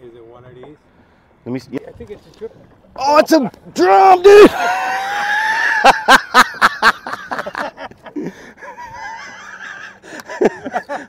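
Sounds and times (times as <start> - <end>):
man shouting excitedly: 3.0 - 4.8
man laughing: 4.3 - 11.0.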